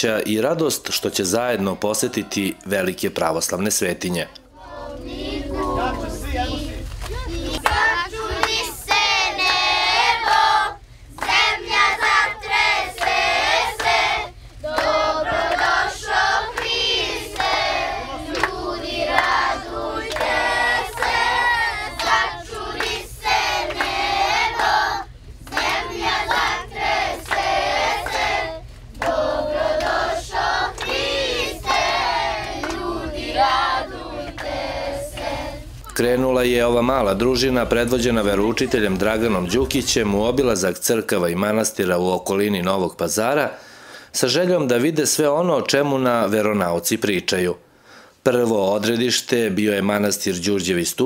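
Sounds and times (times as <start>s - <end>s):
children singing: 4.5s - 36.1s.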